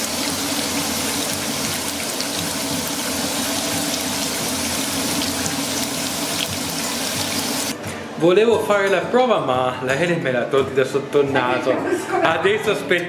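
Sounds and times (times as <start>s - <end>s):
tortilla deep-frying in oil: 0.0s - 7.7s.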